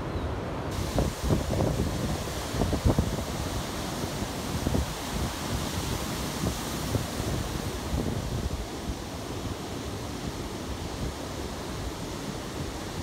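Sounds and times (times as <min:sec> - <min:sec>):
surf breaking over rocks: 0:00.7 - 0:11.0
wind buffeting microphone: 0:00.7 - 0:13.0.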